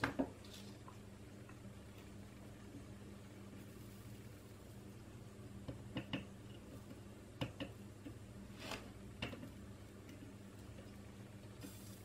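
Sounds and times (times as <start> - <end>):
low steady hum: 0.0 - 12.0
soft hiss: 8.3 - 12.0.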